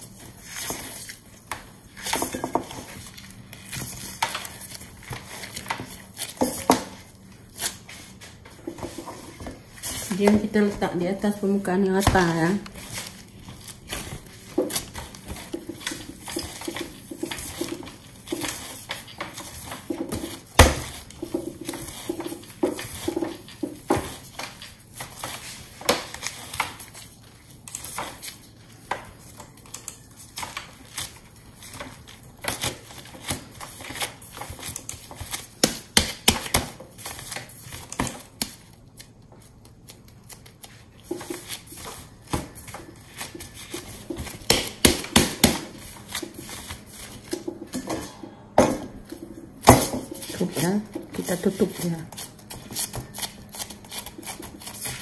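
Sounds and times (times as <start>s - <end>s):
dough thudding on wooden board: 13.9s - 25.1s, 41.1s - 51.2s.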